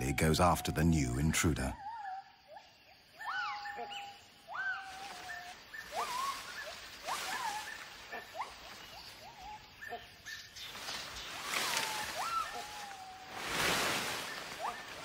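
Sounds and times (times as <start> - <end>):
gibbons hooting: 0.0 - 6.5
leaves rustling: 4.5 - 15.0.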